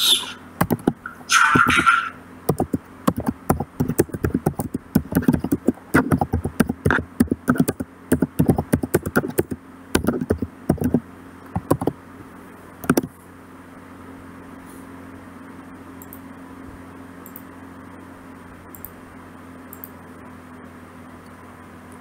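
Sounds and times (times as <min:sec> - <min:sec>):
computer keyboard typing: 0:00.6 - 0:01.0, 0:02.5 - 0:12.0, 0:12.8 - 0:13.1.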